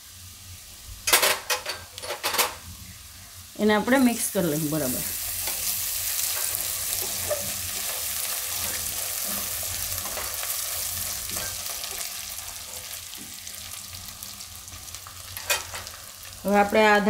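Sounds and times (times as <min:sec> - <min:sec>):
onion sizzling in hot oil: 0:00.0 - 0:17.0
spatula stirring and scraping: 0:05.1 - 0:13.6.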